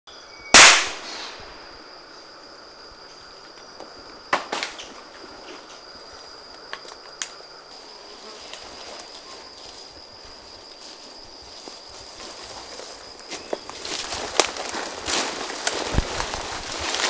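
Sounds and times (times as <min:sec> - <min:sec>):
insect chorus whine: 0:00.1 - 0:17.0
sharp cracks and snaps: 0:06.6 - 0:07.4, 0:13.7 - 0:17.0.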